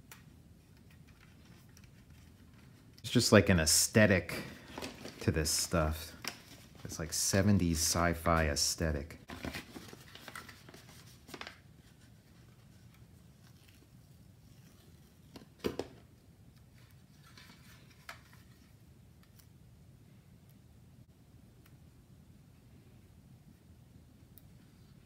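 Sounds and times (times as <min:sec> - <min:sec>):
paper rustling and rubbing: 0:09.2 - 0:15.4.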